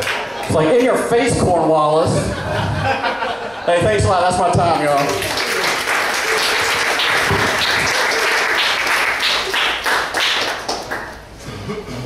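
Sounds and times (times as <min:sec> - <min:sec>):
audience applauding: 0:00.0 - 0:00.4, 0:04.8 - 0:11.3.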